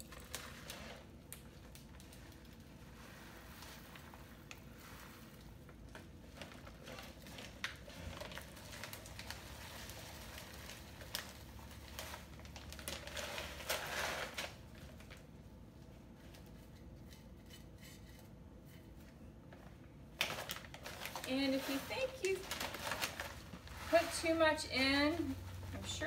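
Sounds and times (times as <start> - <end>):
gravel pebbles clicking onto soil: 0.0 - 14.1
plastic bag crinkling: 0.0 - 15.5, 20.0 - 26.0.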